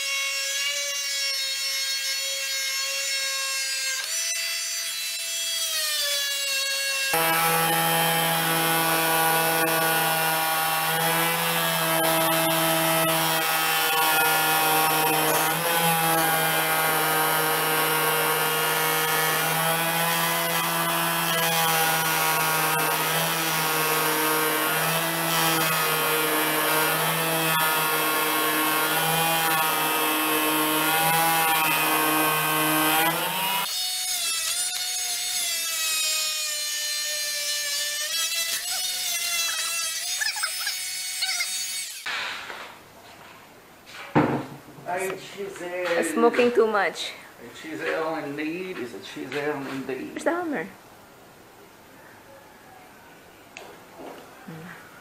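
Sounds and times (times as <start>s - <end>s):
oscillating tool cutting wood: 0.0s - 42.2s.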